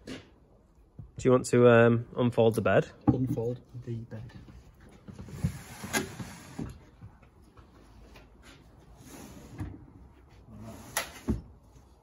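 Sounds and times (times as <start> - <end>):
bed frame sliding and rustling: 4.6 - 7.0, 7.7 - 11.6.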